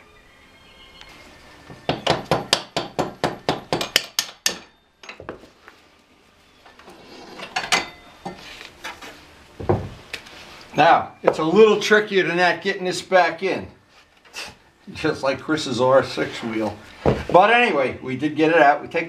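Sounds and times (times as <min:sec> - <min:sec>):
rapid hammer strikes on metal: 0:01.9 - 0:04.7.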